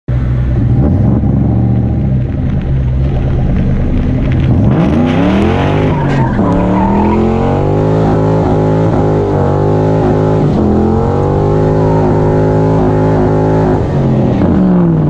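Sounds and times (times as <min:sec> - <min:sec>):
car engine revving: 0:00.1 - 0:15.0
tyre squeal: 0:05.2 - 0:07.9.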